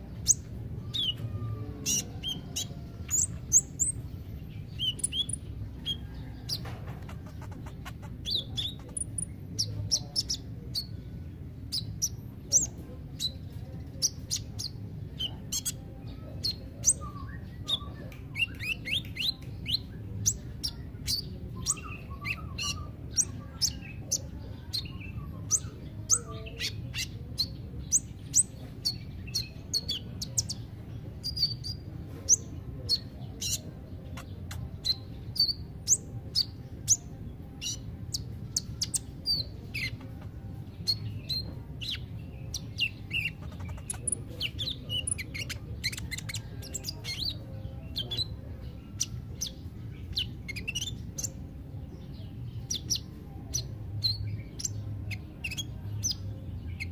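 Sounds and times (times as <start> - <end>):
sunbird singing high chirps: 0.0 - 6.6, 7.4 - 56.9.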